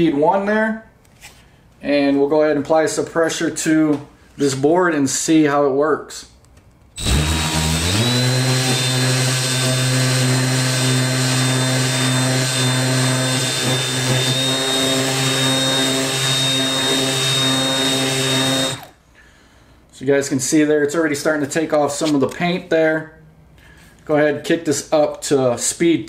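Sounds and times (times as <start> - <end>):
electric sander sanding paint: 7.0 - 18.9.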